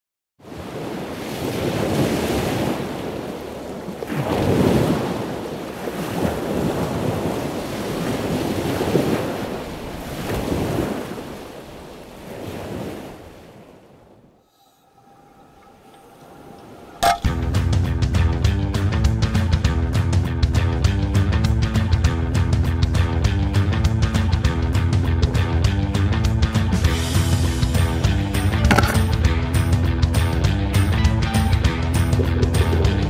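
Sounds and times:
rushing sea waves: 0:00.4 - 0:17.4.

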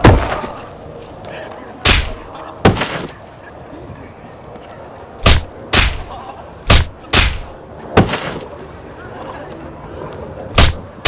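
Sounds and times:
punch sound effects: 0:05.2 - 0:06.1, 0:06.7 - 0:08.4, 0:10.6 - 0:10.8.

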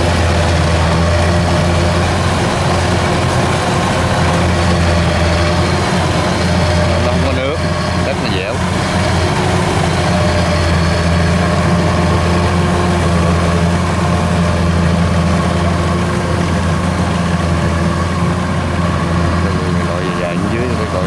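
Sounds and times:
combine harvester engine droning: 0:00.0 - 0:21.0.

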